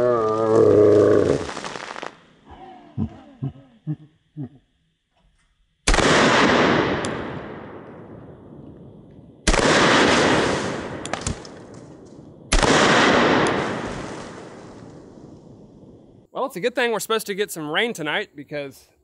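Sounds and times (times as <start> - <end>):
pistol shots cracking: 5.9 - 7.8, 9.4 - 11.7, 12.5 - 14.4
heavy explosion blasts: 5.9 - 11.0, 11.8 - 16.1.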